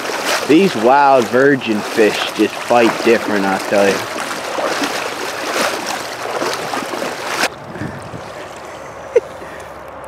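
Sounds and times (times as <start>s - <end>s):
river rushing: 0.0s - 7.5s
legs splashing through water: 0.0s - 9.6s.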